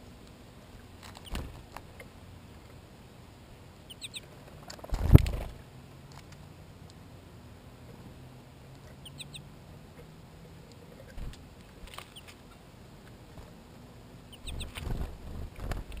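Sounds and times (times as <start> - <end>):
songbirds chirping: 0.0 - 16.0
bird wings flapping: 1.0 - 1.8, 4.6 - 5.6, 14.5 - 16.0.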